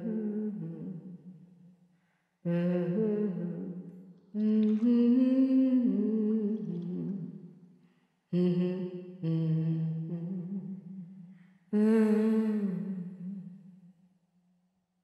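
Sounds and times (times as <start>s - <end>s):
person humming slow melody: 0.0s - 1.0s, 8.4s - 11.2s, 11.8s - 13.6s.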